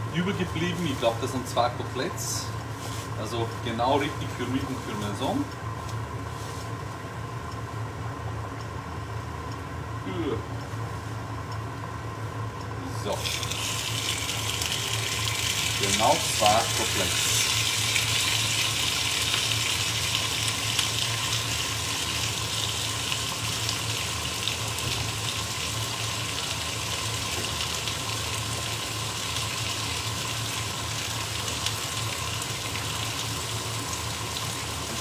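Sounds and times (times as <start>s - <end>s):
meat sizzling in oil: 13.1s - 35.0s.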